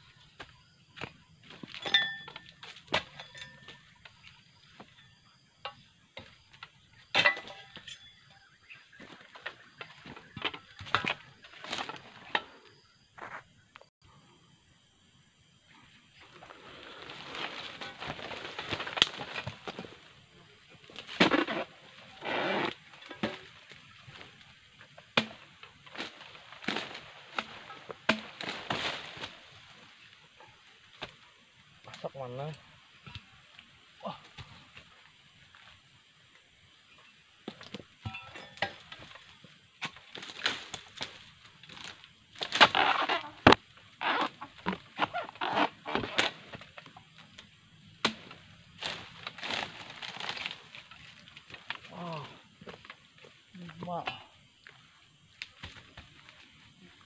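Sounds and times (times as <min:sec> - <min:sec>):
palm fronds rustling: 0:08.4 - 0:13.4, 0:15.8 - 0:57.0
chisel chopping palm stalks: 0:25.1 - 0:29.3, 0:39.8 - 0:46.8, 0:48.0 - 0:51.9.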